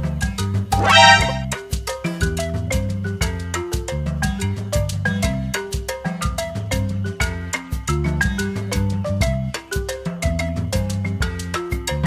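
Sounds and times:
upbeat background music: 0.8s - 1.5s.

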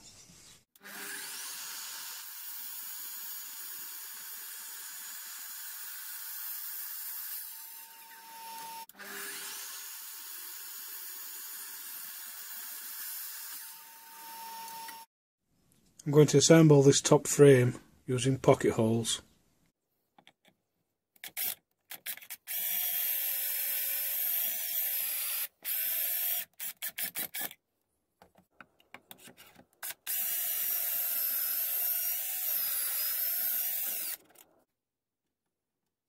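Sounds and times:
cordless drill boring: 0.8s - 15.1s, 21.2s - 27.6s, 29.8s - 34.4s
drill trigger clicks: 25.3s - 27.6s.

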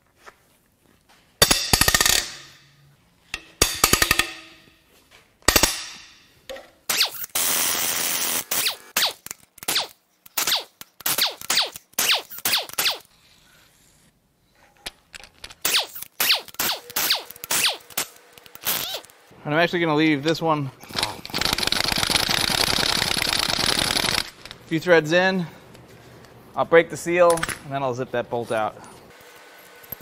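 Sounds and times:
bolts cracking loose with metallic bangs: 3.3s - 4.7s, 5.4s - 7.0s
air impact wrench running: 6.9s - 9.2s, 15.6s - 19.1s, 21.2s - 24.5s.

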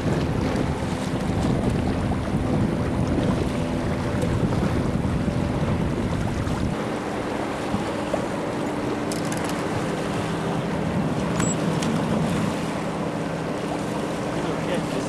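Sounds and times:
wind buffeting the microphone: 0.0s - 9.0s.

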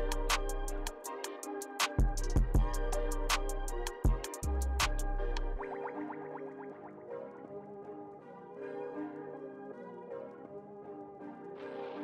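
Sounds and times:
deep bass: 0.0s - 0.9s, 2.1s - 5.6s
hi-hat ticks: 0.0s - 5.5s
kick drum: 2.0s - 2.9s, 4.0s - 4.3s.

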